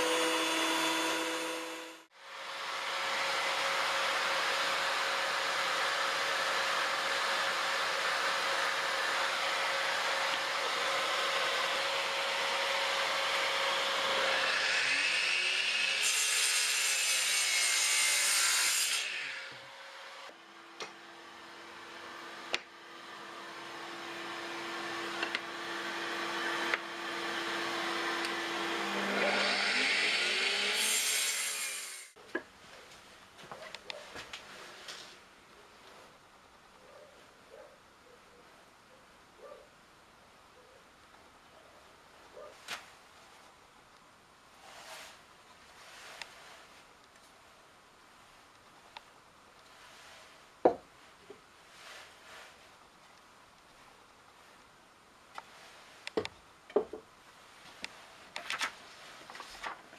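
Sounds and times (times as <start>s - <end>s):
circular saw cutting wood: 0.0s - 32.2s.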